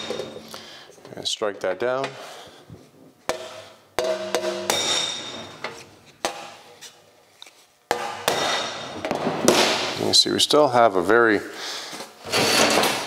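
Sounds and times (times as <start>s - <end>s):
hammer striking sheet metal: 3.3s - 6.7s, 7.9s - 10.0s.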